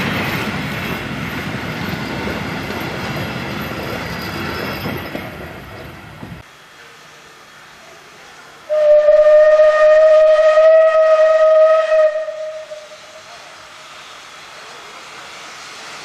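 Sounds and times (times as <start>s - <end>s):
steam locomotive whistle: 8.7s - 13.4s.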